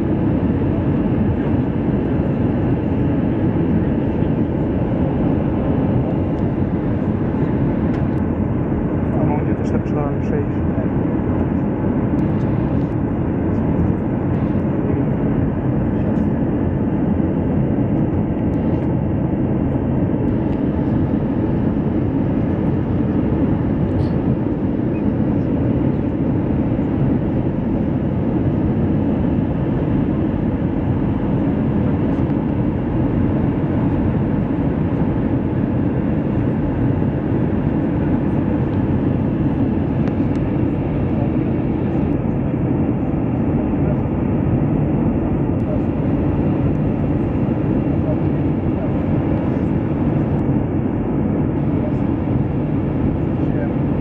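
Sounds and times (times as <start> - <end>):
jet airliner cabin noise: 0.0 - 54.0.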